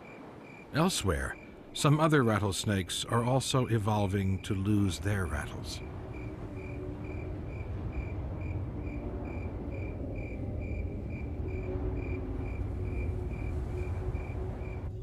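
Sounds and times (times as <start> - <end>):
insect chirping: 0.0 - 15.0
low rumble: 3.0 - 15.0.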